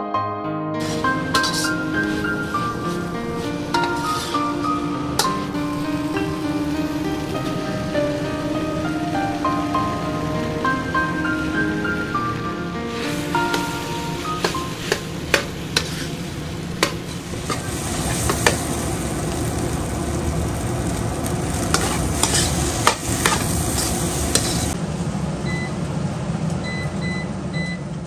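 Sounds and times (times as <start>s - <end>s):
spatula scraping a wok: 0.8s - 5.7s, 13.0s - 18.7s, 21.5s - 24.8s
rice sizzling in a wok: 0.8s - 12.2s, 12.9s - 25.0s.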